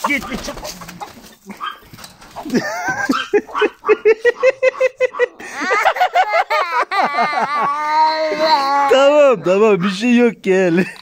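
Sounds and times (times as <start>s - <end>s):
toddler crying: 5.4s - 9.2s.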